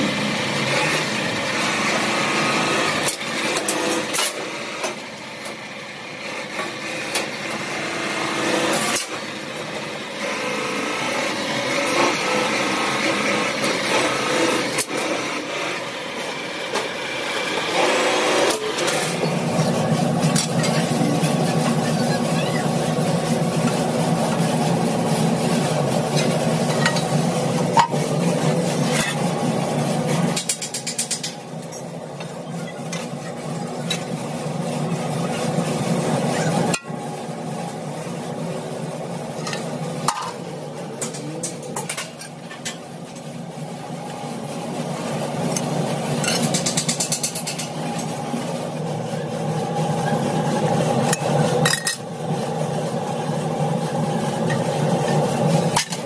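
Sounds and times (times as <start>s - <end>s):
hydraulic press machine hum: 0.0s - 56.0s.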